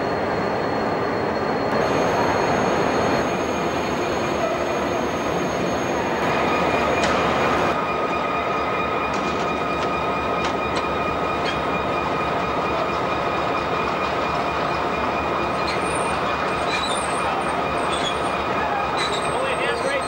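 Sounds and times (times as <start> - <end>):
high whine: 0.0 - 13.7
locomotive engines running: 0.0 - 20.0.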